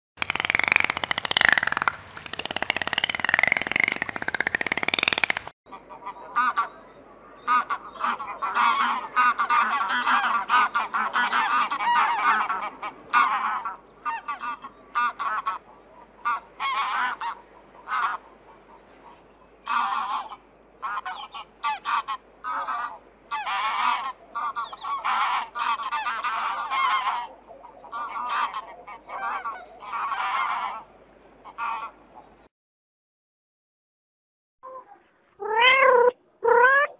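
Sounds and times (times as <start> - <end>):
geese honking: 5.7 - 32.3.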